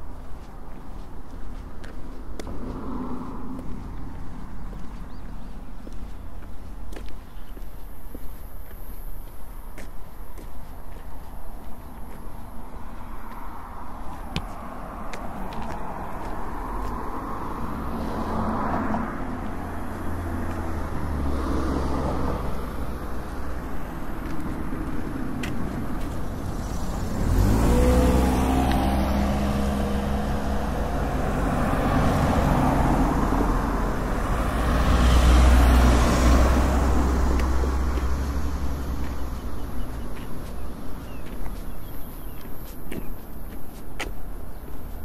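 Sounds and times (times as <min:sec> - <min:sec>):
vehicles passing on road: 0:00.0 - 0:45.0.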